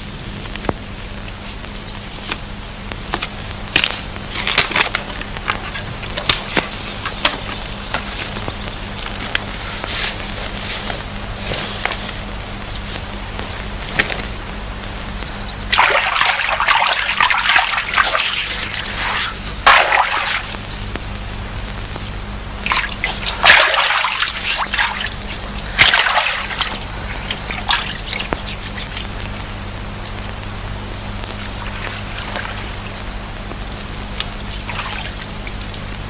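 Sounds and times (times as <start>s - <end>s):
steady low hum: 0.0s - 36.0s
water splashing: 15.6s - 20.7s, 22.5s - 36.0s.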